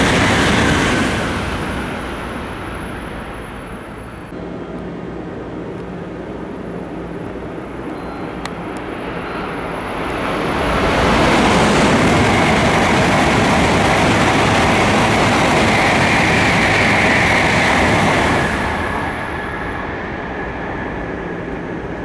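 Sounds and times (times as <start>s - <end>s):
train passing at speed: 0.0s - 22.0s.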